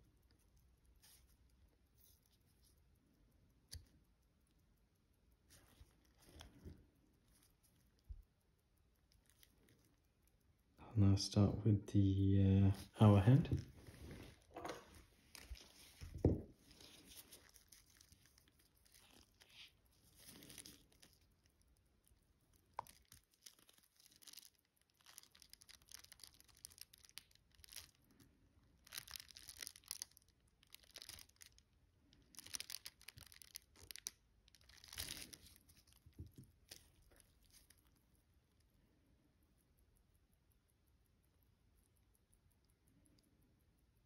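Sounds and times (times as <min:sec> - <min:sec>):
faint rustling and scraping: 0:00.3 - 0:04.0, 0:05.4 - 0:08.4, 0:12.6 - 0:38.9.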